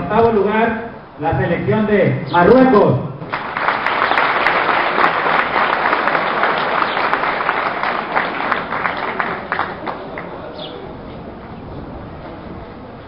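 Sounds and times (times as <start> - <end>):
crowd applauding: 3.3 - 10.8.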